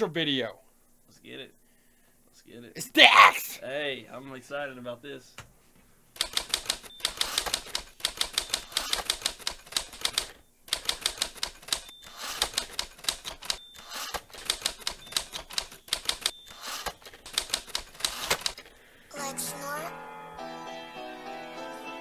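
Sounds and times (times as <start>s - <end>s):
typewriter keys clacking: 6.2s - 18.7s
typewriter bell ding: 11.4s - 17.9s.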